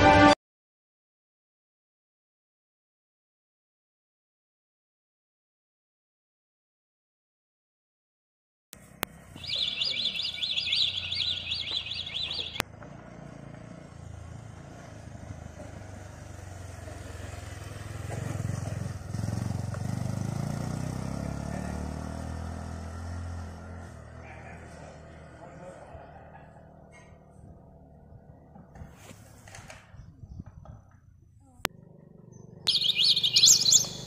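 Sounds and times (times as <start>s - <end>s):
motorcycle engine passing: 8.8s - 34.0s
rapid high-pitched chirping: 9.4s - 12.6s, 32.7s - 34.0s.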